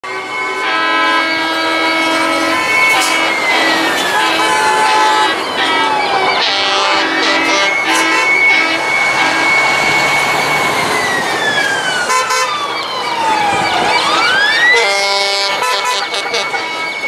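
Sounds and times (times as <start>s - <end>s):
truck horn blast: 0.0s - 9.9s, 12.1s - 12.6s, 14.7s - 17.0s
fire truck siren wailing: 0.0s - 17.0s
truck engines passing: 0.0s - 17.0s.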